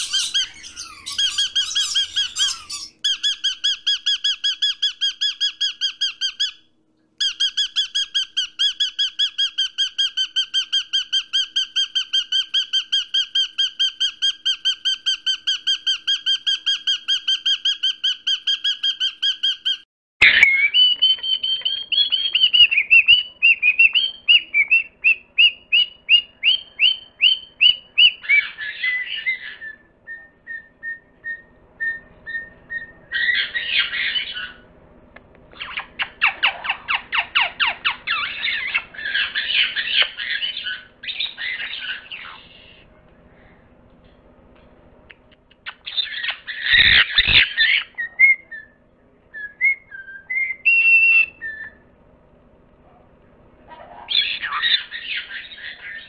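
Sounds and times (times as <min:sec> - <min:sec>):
parrot chirps and whistles: 0:00.0 - 0:06.6, 0:07.2 - 0:34.6, 0:35.5 - 0:42.8, 0:45.6 - 0:51.8, 0:53.7 - 0:56.0
parrot squawking: 0:00.0 - 0:06.6, 0:07.2 - 0:29.9, 0:32.3 - 0:34.7, 0:35.5 - 0:42.8, 0:45.6 - 0:48.4, 0:53.7 - 0:56.0
parrot trilling: 0:00.0 - 0:34.7, 0:35.5 - 0:42.8, 0:45.6 - 0:51.8, 0:53.7 - 0:56.0.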